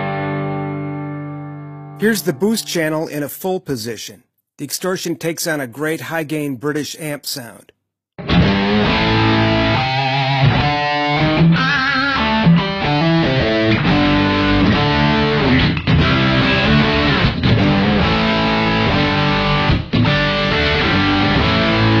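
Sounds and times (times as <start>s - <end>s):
distorted electric guitar: 0.0s - 2.5s, 8.2s - 22.0s.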